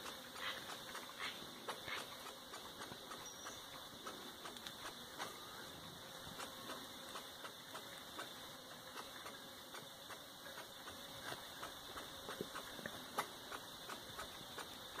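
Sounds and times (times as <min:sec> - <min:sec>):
squirrel gnawing sharp clicks: 0:00.0 - 0:05.4, 0:06.3 - 0:15.0
outdoor hiss: 0:00.0 - 0:15.0.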